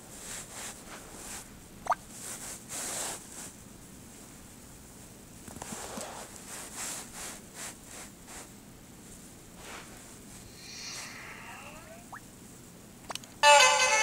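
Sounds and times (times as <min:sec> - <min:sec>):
rubbing and scratching: 0:02.2 - 0:03.6, 0:05.5 - 0:08.5
faint electronic tone: 0:10.4 - 0:12.2.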